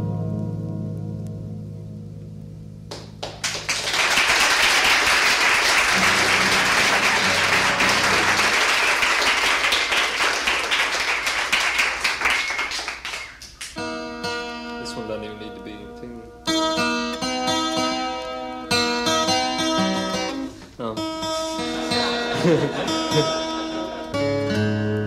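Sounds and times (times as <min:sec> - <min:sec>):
acoustic guitar playing: 0:00.0 - 0:03.7, 0:05.5 - 0:10.9, 0:13.3 - 0:25.0
audience clapping: 0:02.9 - 0:13.9, 0:22.2 - 0:24.2.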